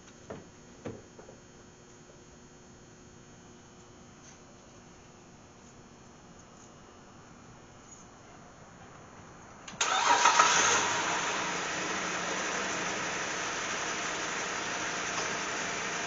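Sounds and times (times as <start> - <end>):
car engine starting and idling: 9.7 - 16.0.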